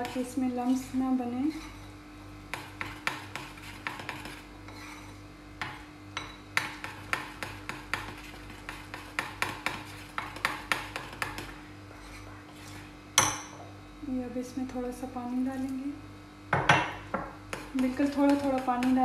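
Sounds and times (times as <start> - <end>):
faint steady hum: 0.0 - 19.0
spoon beating batter in bowl: 2.5 - 13.5, 17.5 - 19.0.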